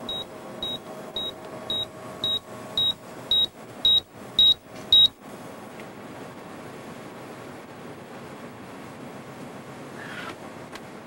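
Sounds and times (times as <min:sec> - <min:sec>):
short high computer beeps: 0:00.1 - 0:05.1.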